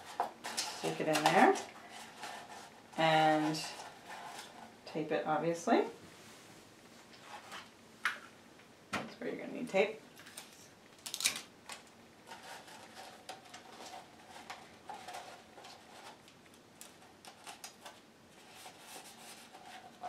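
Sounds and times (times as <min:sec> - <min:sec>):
tape ripping from dispenser: 0:10.2 - 0:11.8.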